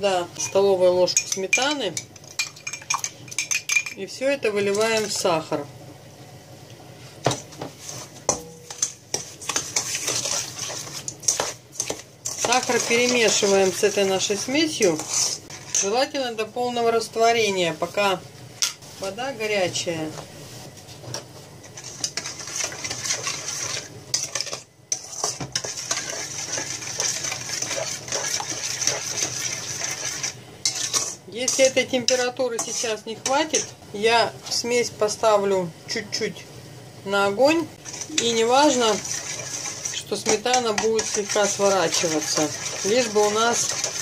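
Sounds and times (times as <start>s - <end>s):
wet gritty scraping of sugar: 7.8s - 15.9s, 21.7s - 33.6s, 37.8s - 44.0s.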